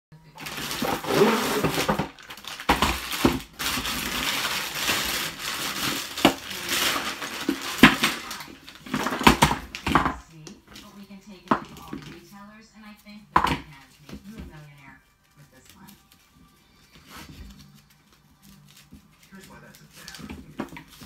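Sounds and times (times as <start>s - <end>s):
plastic bag crinkling: 0.3s - 10.1s, 14.7s - 21.0s.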